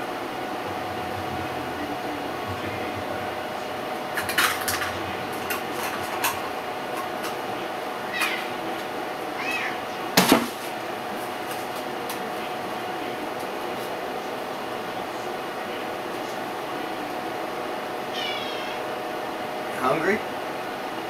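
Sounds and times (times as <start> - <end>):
steady hum: 0.0 - 18.1
cats meowing: 8.0 - 8.6, 9.3 - 9.9, 18.1 - 18.8.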